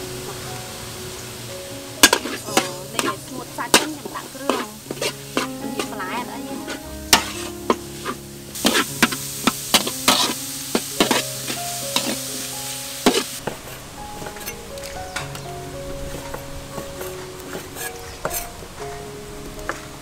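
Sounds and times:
food sizzling in hot oil: 0.0 - 15.5
metal ladle scraping a wok: 2.0 - 14.6, 17.0 - 18.5.

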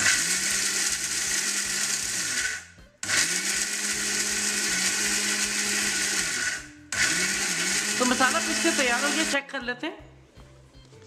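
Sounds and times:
mixer grinder grinding spices: 0.0 - 9.4.

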